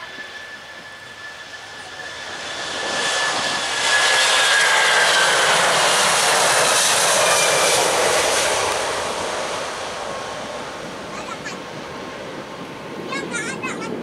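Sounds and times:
faint high whine: 0:00.0 - 0:05.7
jet engines at takeoff power: 0:00.0 - 0:14.0.

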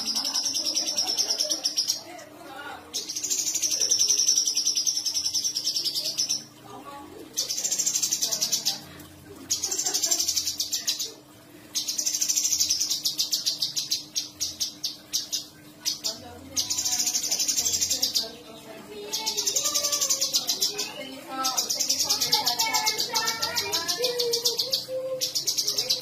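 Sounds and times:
bird singing fast rolling trills: 0:11.8 - 0:26.0.

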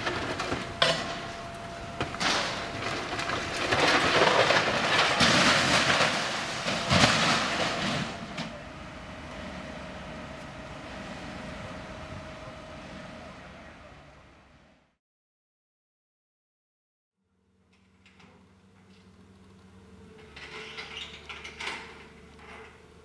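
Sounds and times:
fire engine humming: 0:00.0 - 0:15.0.

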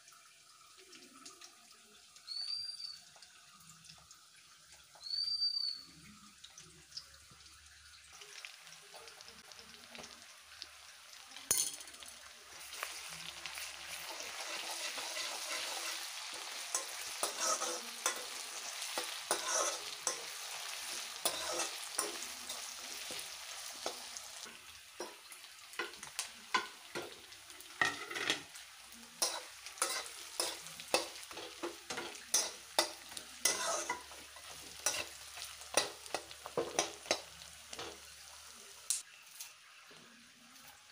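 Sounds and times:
food sizzling in hot oil: 0:00.0 - 0:40.9
spatula scraping and knocking pan: 0:14.0 - 0:24.1, 0:29.2 - 0:38.0.

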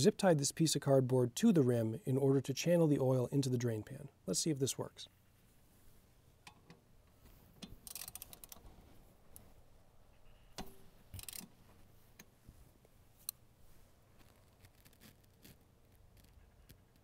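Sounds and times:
socket ratchet clicking: 0:07.7 - 0:08.6, 0:10.6 - 0:11.5.

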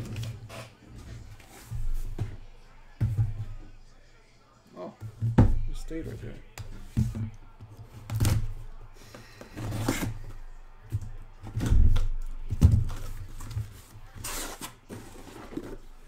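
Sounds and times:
cardboard scraping and rustling: 0:13.0 - 0:15.9.

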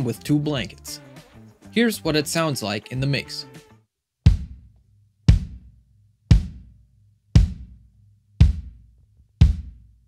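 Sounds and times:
kick drum thumps with beater click: 0:04.3 - 0:04.7, 0:05.3 - 0:05.7, 0:06.3 - 0:06.8, 0:07.4 - 0:07.8, 0:08.4 - 0:09.9.

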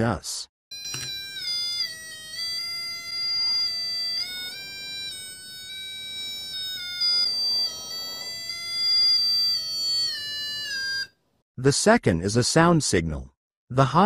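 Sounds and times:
electronic buzzer tone: 0:00.7 - 0:11.1.

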